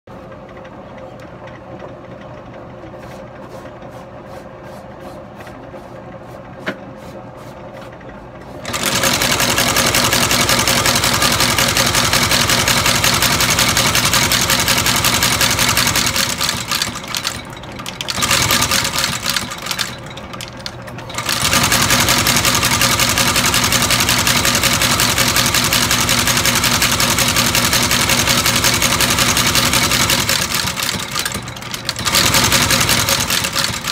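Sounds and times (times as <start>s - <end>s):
stitching machine clattering: 8.6s - 33.9s.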